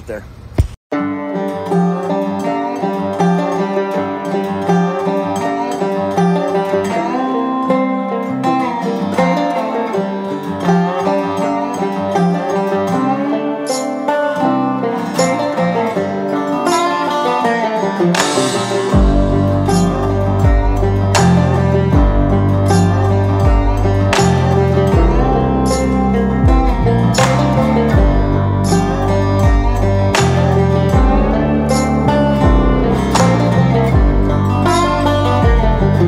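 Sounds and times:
country plucked-string music: 0.9s - 36.0s
low bass: 18.2s - 36.0s.

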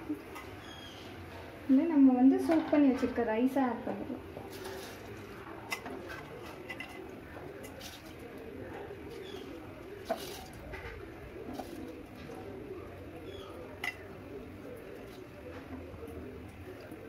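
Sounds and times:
spoon clinking against metal pots: 13.4s - 14.1s.

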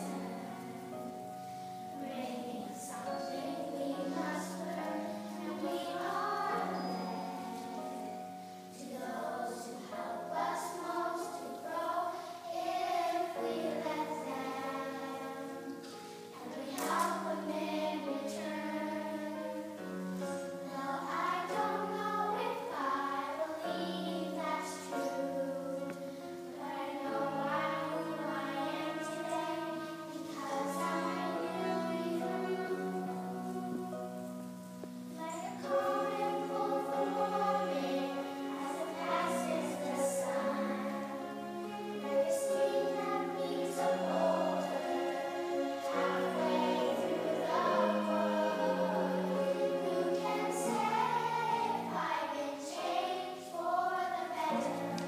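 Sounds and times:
girls choir singing: 0.0s - 55.0s.

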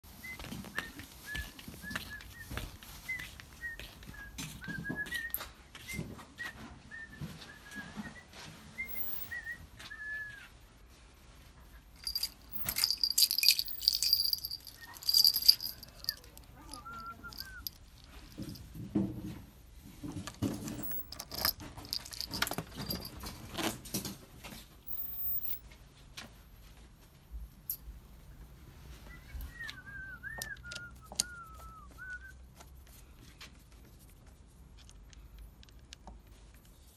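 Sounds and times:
jangling and rustling: 11.9s - 25.6s.

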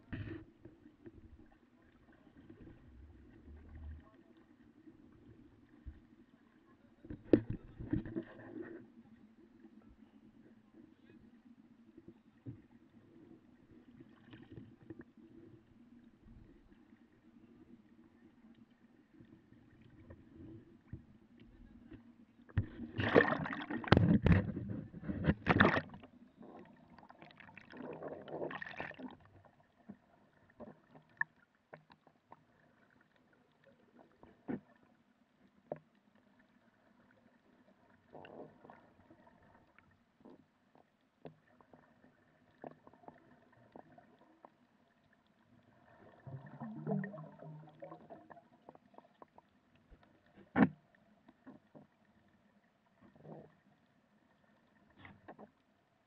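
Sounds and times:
water splashing and bubbling: 22.5s - 56.0s.

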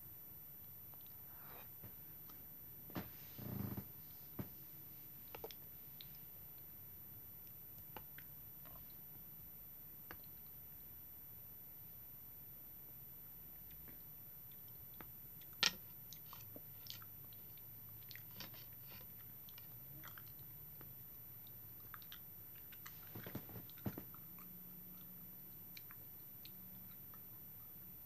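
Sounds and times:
wet chewing clicks: 14.5s - 20.6s, 21.4s - 27.3s.

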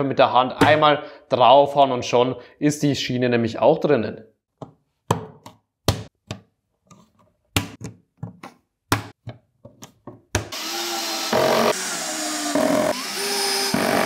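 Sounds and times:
cordless drill running: 10.5s - 14.0s.

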